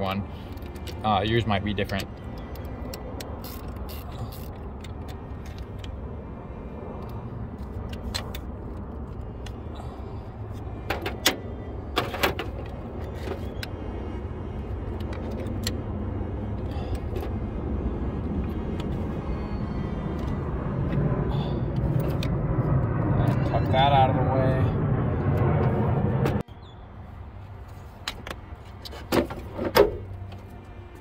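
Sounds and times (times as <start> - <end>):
ratchet and wrench clicking: 1.9 - 5.8
low rumble: 14.1 - 26.4.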